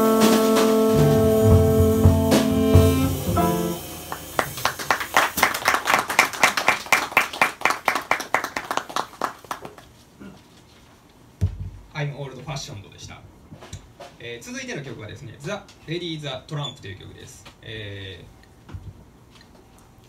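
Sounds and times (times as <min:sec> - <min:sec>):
jazz band final chord: 0:00.0 - 0:05.1
audience clapping: 0:04.1 - 0:10.0.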